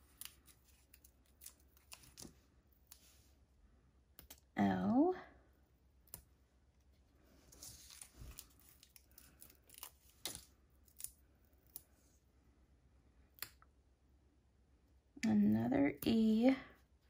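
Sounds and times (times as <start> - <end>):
paper rustling: 7.2 - 11.1.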